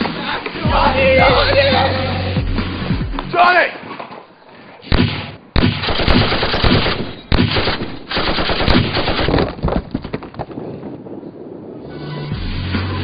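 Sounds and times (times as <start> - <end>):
machine-gun fire: 4.9 - 9.5.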